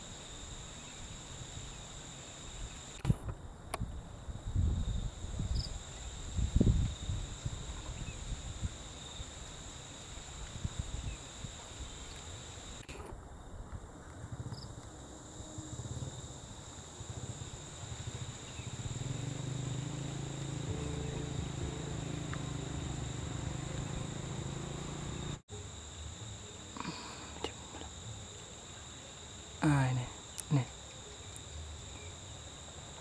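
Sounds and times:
insects chirring: 0.0 - 33.0
low rumble: 18.1 - 25.4.

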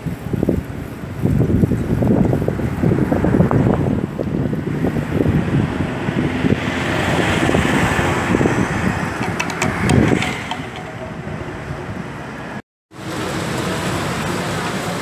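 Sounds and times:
wind buffeting microphone: 0.0 - 12.6
passing traffic: 1.1 - 15.0
van passing by: 4.7 - 15.0.

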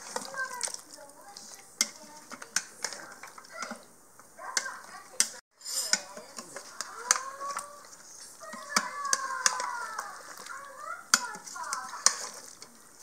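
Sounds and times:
spoon stirring thick stew: 0.0 - 13.0
spoon clinking on metal pot: 5.2 - 7.6.

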